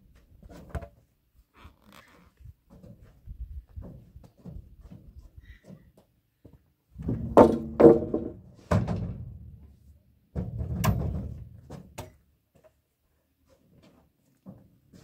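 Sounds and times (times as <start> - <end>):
wooden poles knocking and clattering: 7.0 - 9.3.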